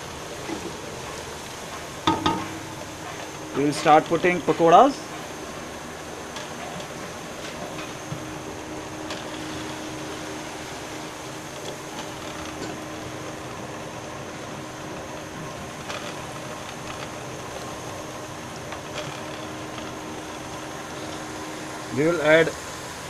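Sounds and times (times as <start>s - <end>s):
food sizzling in hot oil: 0.0s - 15.8s
oil popping: 1.8s - 4.3s.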